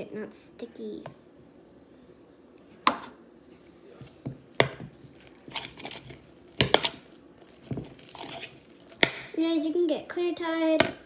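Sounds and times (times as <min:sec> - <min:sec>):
hands handling slime: 0:03.9 - 0:09.3
sharp knocks in plastic bowl: 0:09.0 - 0:09.3.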